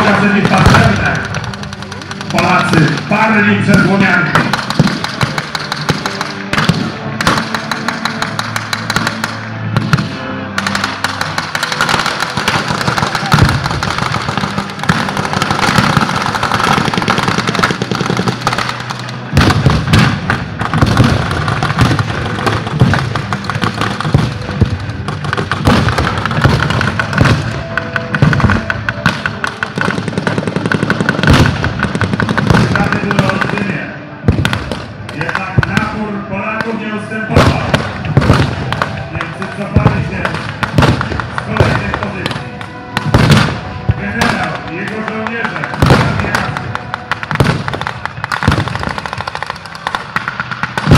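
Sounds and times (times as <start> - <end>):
machine-gun bursts: 0.0 - 3.2, 10.6 - 19.1
background music: 0.0 - 50.9
rapid rifle shots: 0.0 - 50.9.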